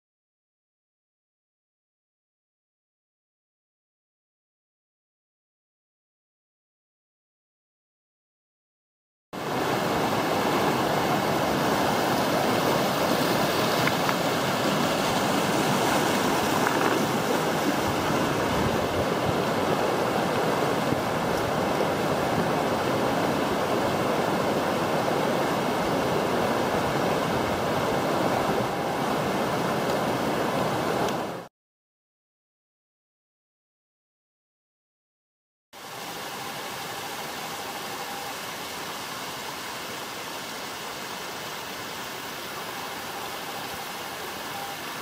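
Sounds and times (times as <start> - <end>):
faint high tones: 36.0 - 38.6, 42.6 - 45.0.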